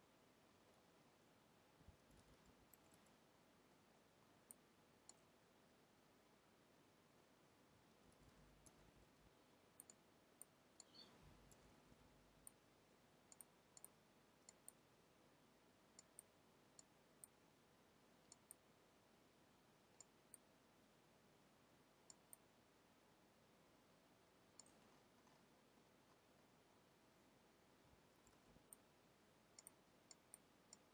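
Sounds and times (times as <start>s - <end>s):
computer mouse clicks: 1.9s - 3.2s, 4.4s - 5.3s, 8.1s - 8.9s, 9.8s - 11.7s, 13.3s - 14.8s, 16.0s - 17.4s, 18.2s - 18.7s, 22.1s - 22.5s, 24.5s - 25.5s, 29.5s - 30.9s.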